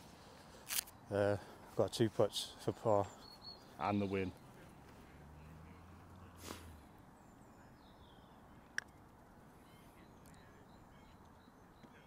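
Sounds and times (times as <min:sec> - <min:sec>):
faint bird calls: 0:09.5 - 0:12.0.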